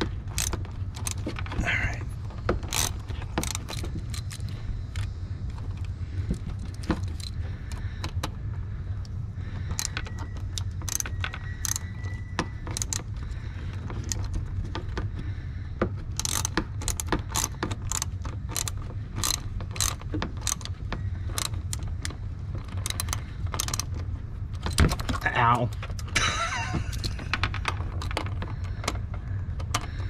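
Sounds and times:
steady low hum: 0:00.0 - 0:30.0
hand ratchet clicking: 0:00.1 - 0:01.9, 0:02.5 - 0:08.3, 0:09.7 - 0:15.0, 0:16.0 - 0:26.1.

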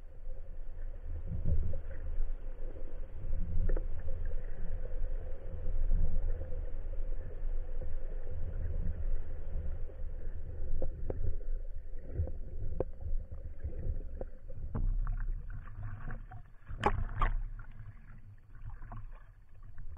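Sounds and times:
faint steady hum: 0:00.0 - 0:19.9
underwater rumble of moving water: 0:00.0 - 0:19.9.

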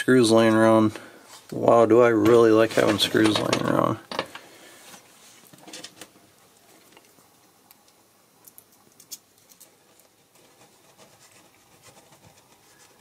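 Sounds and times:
small parts clicking and tapping: 0:06.8 - 0:10.2.

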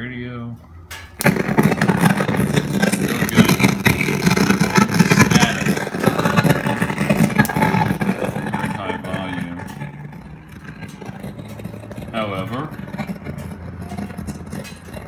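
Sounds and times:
crackling garbled radio noise: 0:01.2 - 0:15.0.

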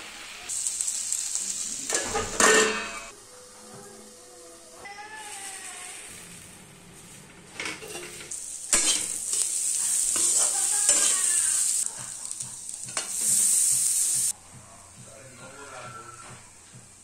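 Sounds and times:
vegetables sizzling in oil: 0:00.0 - 0:14.4
spatula scraping metal pan: 0:07.6 - 0:09.2.

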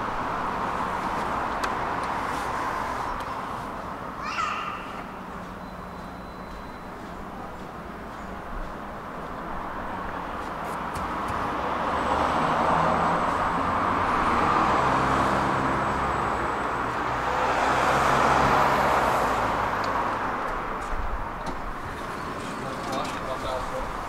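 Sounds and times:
road traffic: 0:00.0 - 0:24.0
vehicle passing: 0:09.7 - 0:20.8.

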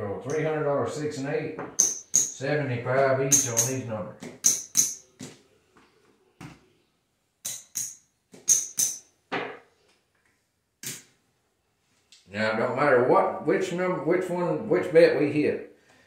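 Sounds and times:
casino chips clacking: 0:01.8 - 0:02.4, 0:04.4 - 0:05.1, 0:07.5 - 0:09.0.

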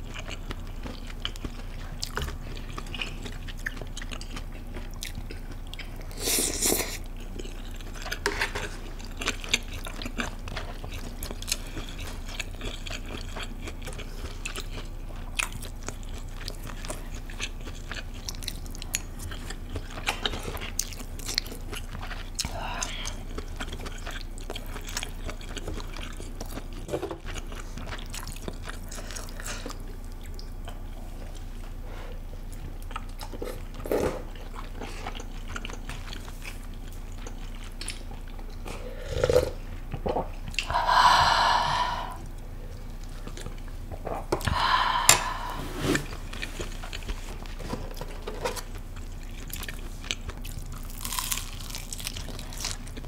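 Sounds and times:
chewing and mouth clicks: 0:00.0 - 0:31.5, 0:32.4 - 0:40.7, 0:46.0 - 0:53.0
slurping soup: 0:44.8 - 0:47.7
crunchy bite of fried chicken: 0:49.0 - 0:53.0.

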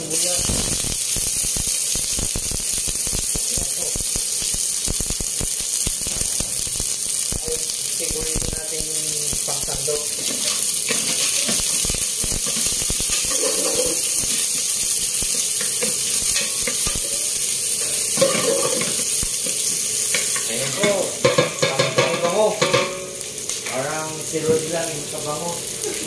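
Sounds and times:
garlic and onion sizzling in oil: 0:00.0 - 0:26.0.

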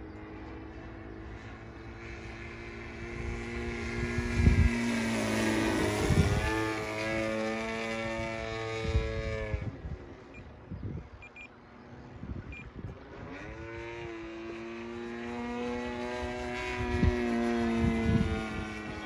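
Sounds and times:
model plane motor droning: 0:00.0 - 0:10.2, 0:13.2 - 0:19.0.

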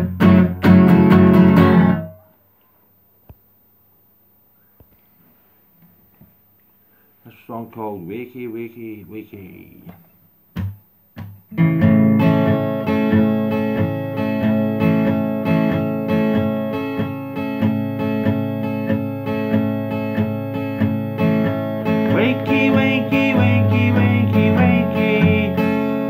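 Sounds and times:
acoustic guitar strumming: 0:00.0 - 0:02.4, 0:10.5 - 0:26.0.

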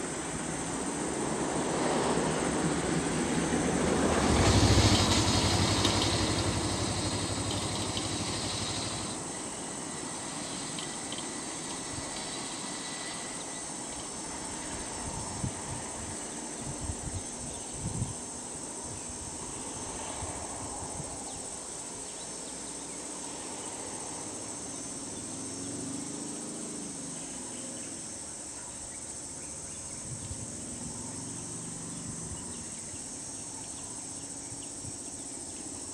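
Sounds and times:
insects chorus: 0:00.0 - 0:35.9
faint low engine hum: 0:02.6 - 0:21.5.

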